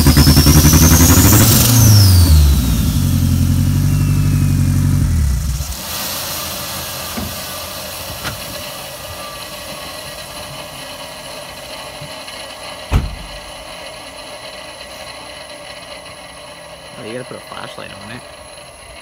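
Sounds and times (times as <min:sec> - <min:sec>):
turbocharger whirring hiss: 0:00.0 - 0:19.0
sharp thump: 0:12.9 - 0:13.5.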